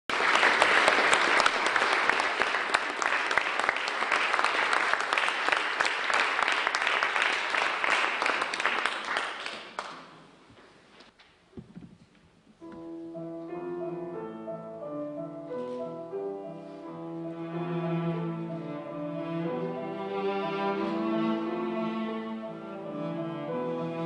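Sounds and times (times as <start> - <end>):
audience applauding: 0.0 - 10.3.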